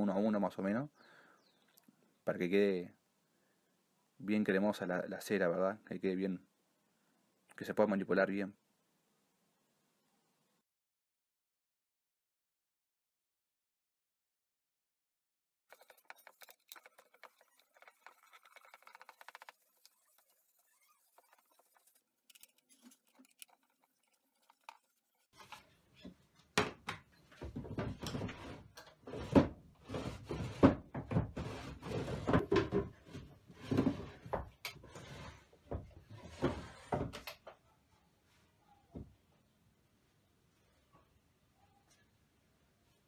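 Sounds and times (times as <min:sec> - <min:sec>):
wooden drawers sliding and knocking: 0:27.4 - 0:37.3.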